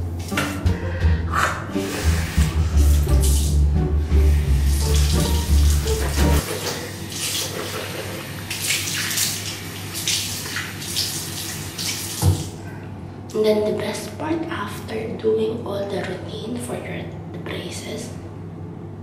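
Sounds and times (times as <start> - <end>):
music with heavy bass: 0.5 - 6.4
tap running into sink: 11.8 - 12.5.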